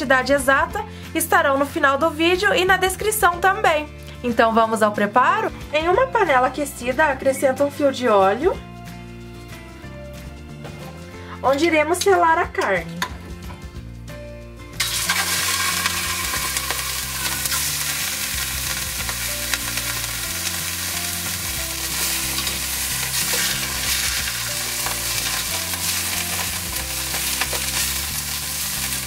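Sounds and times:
meat sizzling in hot oil: 14.8s - 29.0s
metal tongs turning meat: 14.8s - 29.0s.

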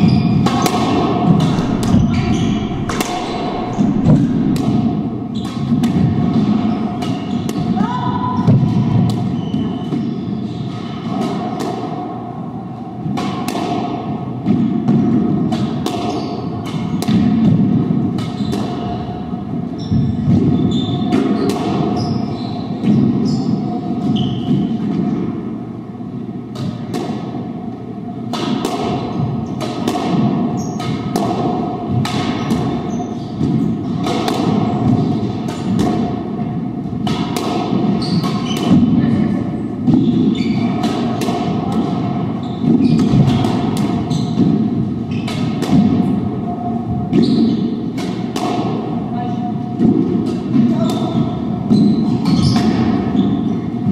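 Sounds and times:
steady background hum: 1.4s - 5.3s.

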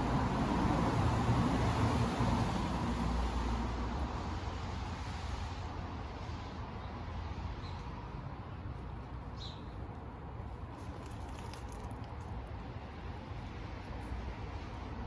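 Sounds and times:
squirrel gnawing on pine cone: 8.7s - 14.2s.

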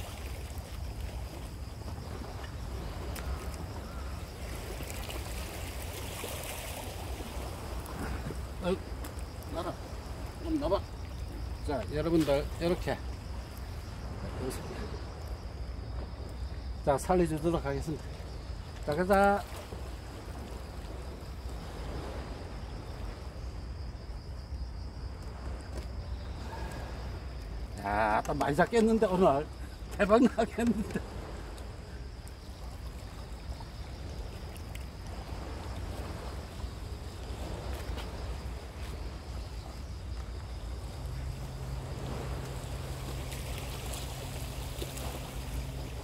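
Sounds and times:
seawater washing among rocks: 0.0s - 15.1s, 26.3s - 46.0s
wind rumble on microphone: 0.0s - 46.0s.

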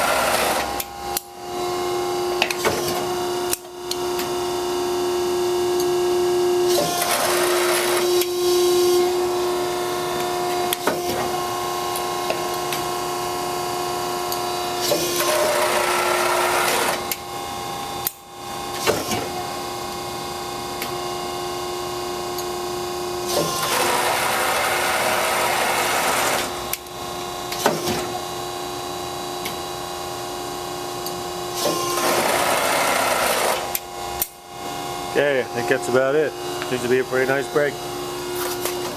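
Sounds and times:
hydraulic pump humming: 0.0s - 18.0s, 23.2s - 28.4s, 31.0s - 38.9s.

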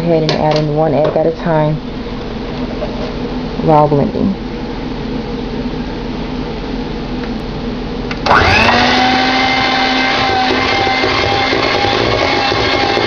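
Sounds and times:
electric hand mixer whining: 8.2s - 13.0s.

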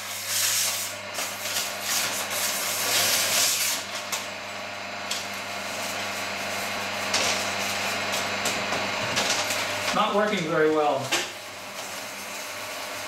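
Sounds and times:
blade rasping against paper: 0.0s - 3.8s
meat slicer motor hum: 0.0s - 13.0s.

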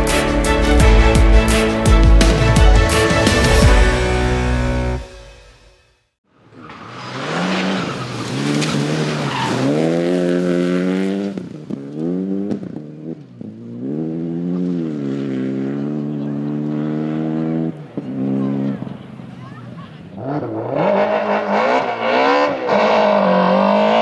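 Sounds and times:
rally car engine accelerating: 6.4s - 24.0s.

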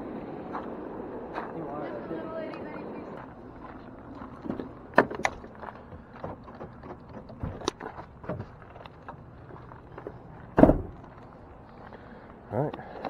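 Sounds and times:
footsteps on gravel: 0.4s - 12.4s
sharp clicks and knocks: 4.4s - 11.1s
truck door shutting: 10.5s - 11.0s.

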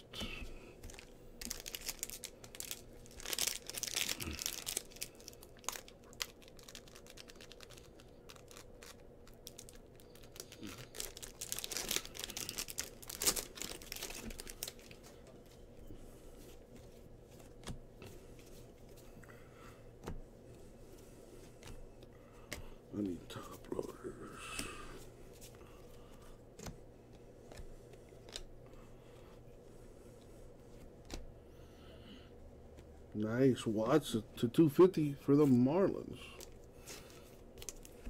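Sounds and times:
wrapper tearing and crinkling: 0.8s - 15.0s, 36.4s - 38.0s.

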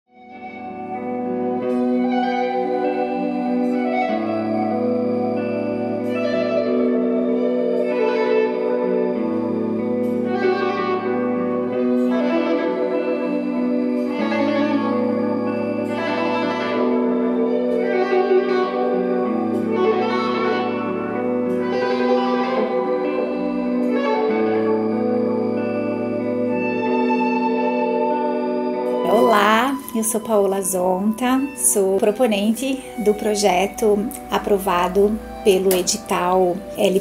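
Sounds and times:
ambient instrumental music: 0.1s - 37.0s.

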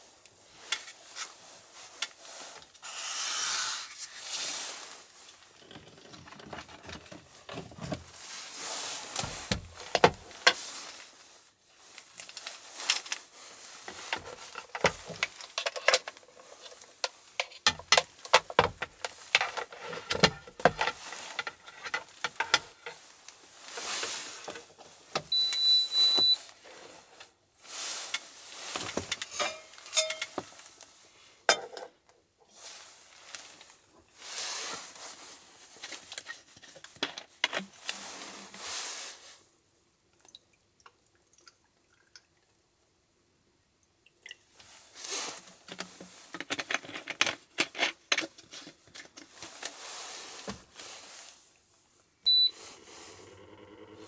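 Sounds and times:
cooktop electronic beep: 25.3s - 26.4s, 52.3s - 52.6s.

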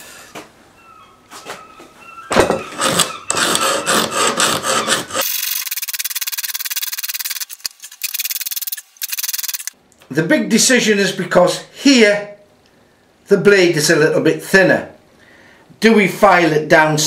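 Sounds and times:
hand file rasping on steel: 2.7s - 5.2s.

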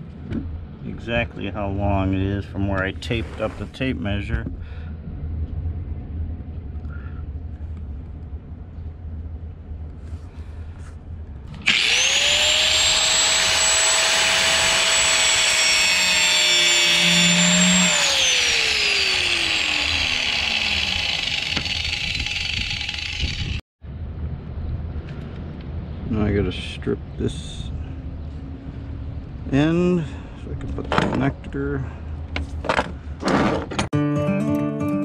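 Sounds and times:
angle grinder cutting wire rope: 11.6s - 23.6s
grinder whine spinning down: 11.6s - 23.6s.

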